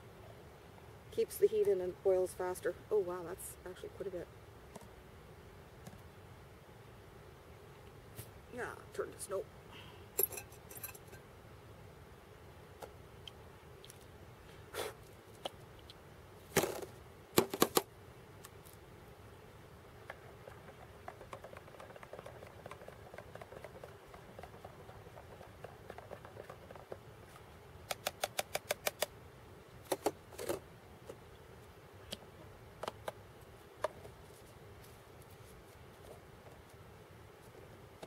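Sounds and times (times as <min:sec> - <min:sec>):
ringing clinks: 0:10.2 - 0:11.2
spork scraping in metal cup: 0:10.2 - 0:11.2
sharp clicks: 0:27.8 - 0:29.1.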